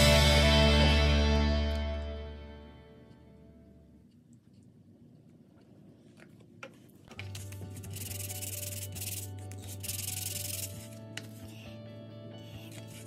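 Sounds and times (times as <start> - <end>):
hand sanding on sandpaper: 7.6 - 11.0.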